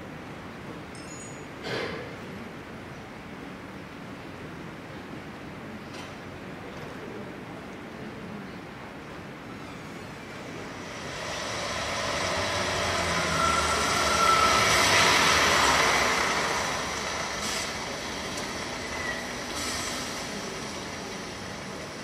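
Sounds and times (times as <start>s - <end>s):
vehicle passing sound effect: 10.6s - 17.9s
high squeal-like tone: 11.0s - 16.8s.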